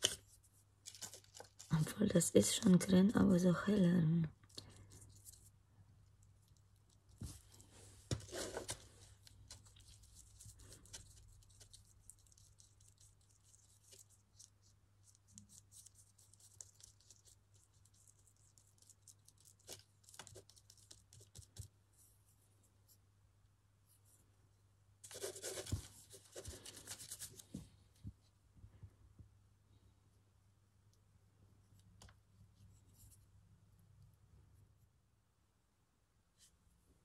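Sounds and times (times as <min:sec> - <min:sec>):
paint mixing scratching and tapping: 0:04.3 - 0:22.0, 0:25.0 - 0:28.1.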